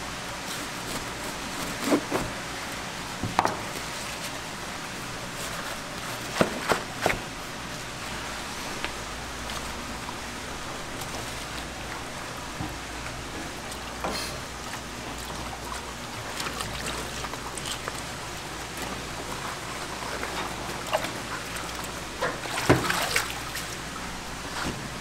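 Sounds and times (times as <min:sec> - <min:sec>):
splashes and knocks: 0:14.8 - 0:23.8
tap water splashing into sink: 0:22.6 - 0:23.4.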